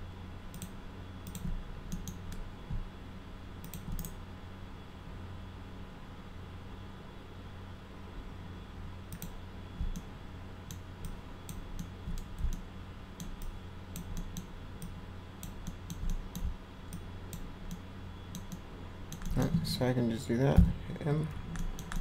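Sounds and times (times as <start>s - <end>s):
steady low hum: 0.0s - 22.0s
mouse and keyboard clicks: 13.2s - 19.6s, 21.3s - 22.0s.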